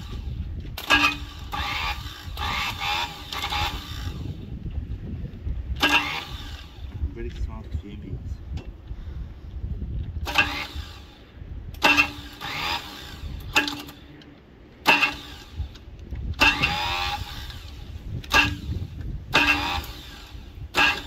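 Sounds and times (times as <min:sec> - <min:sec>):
starter motor cranking engine: 0:00.0 - 0:04.6, 0:05.8 - 0:07.0, 0:10.2 - 0:14.1, 0:14.8 - 0:21.0.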